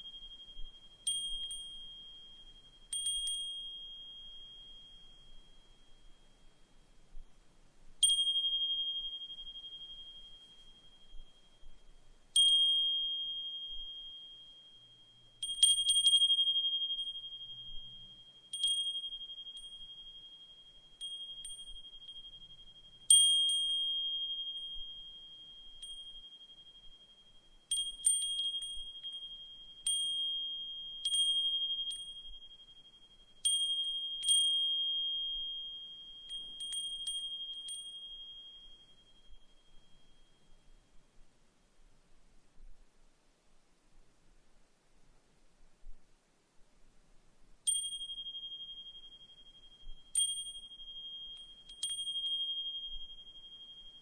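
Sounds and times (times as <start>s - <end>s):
wind chime ringing: 0.0s - 6.3s, 12.4s - 40.7s, 47.7s - 54.0s.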